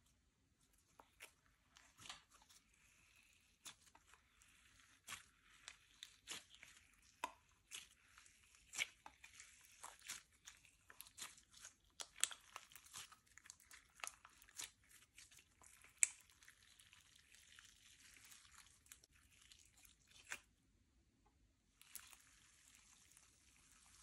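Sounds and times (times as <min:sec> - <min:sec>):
slime squishing and popping: 0:03.6 - 0:19.0.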